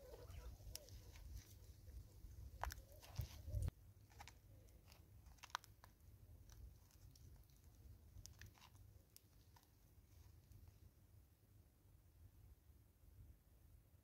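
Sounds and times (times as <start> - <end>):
monkey chewing crunches: 4.1 - 9.8.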